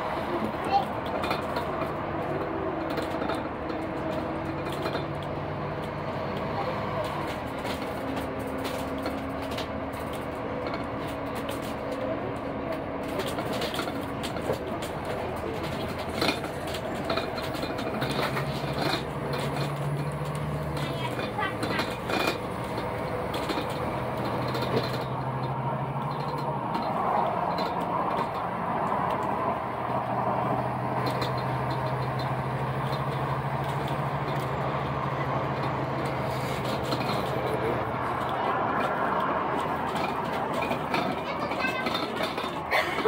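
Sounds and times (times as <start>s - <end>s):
rumble of trains: 0.0s - 43.0s
faint voices: 35.0s - 43.0s.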